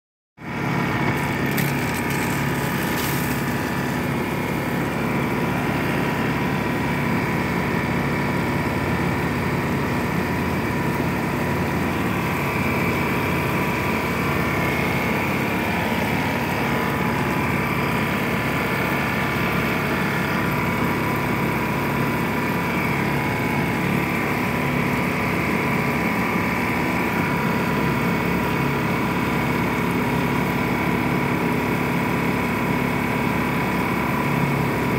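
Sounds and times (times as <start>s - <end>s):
motor-like hum: 0.4s - 34.9s
hose spraying water on shrubs: 1.1s - 6.0s.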